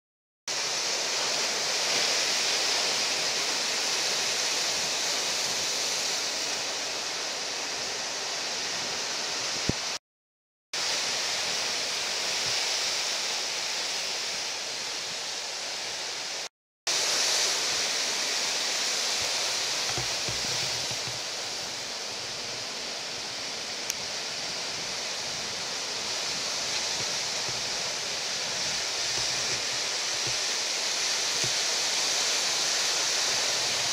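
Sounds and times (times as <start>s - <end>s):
ocean surf breaking: 0.5s - 10.0s, 16.4s - 33.9s.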